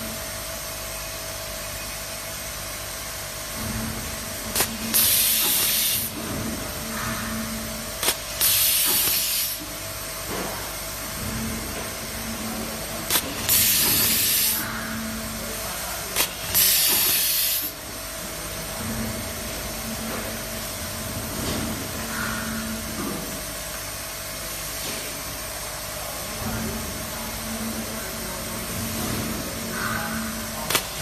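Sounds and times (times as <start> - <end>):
compressed air hiss: 4.6 - 6.1, 8.0 - 9.6, 13.1 - 14.6, 16.2 - 17.7.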